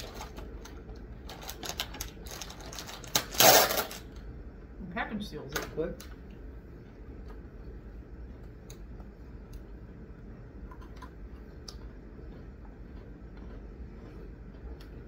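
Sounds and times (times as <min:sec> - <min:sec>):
low steady hum: 0:00.0 - 0:15.0
chewing crunchy cookies: 0:06.8 - 0:15.0.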